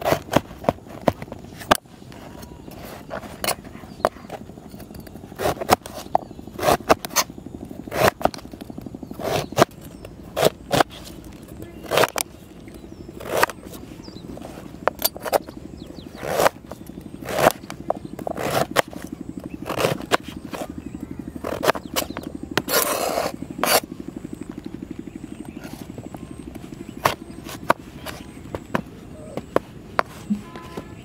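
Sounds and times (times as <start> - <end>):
knife scraping board: 0.0 - 0.4, 5.4 - 7.3, 7.9 - 8.4, 9.2 - 9.7, 10.4 - 11.1, 11.8 - 12.2, 13.2 - 13.6, 16.2 - 16.6, 17.2 - 17.7, 18.3 - 20.7, 21.4 - 23.9, 29.5 - 31.0
steady low hum: 0.0 - 31.0
knife cutting on a plastic board: 5.4 - 7.3, 7.9 - 8.4, 9.2 - 9.8, 10.4 - 11.1, 11.8 - 12.2, 16.2 - 16.6, 17.2 - 20.7, 21.4 - 23.9, 27.0 - 28.8.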